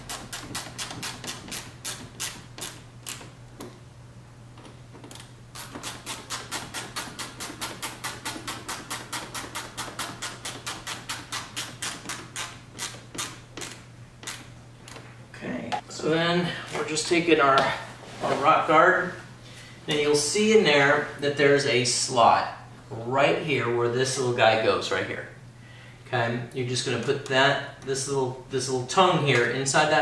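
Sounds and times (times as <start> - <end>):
hand ratchet clicking: 0.0 - 3.8, 4.6 - 15.0.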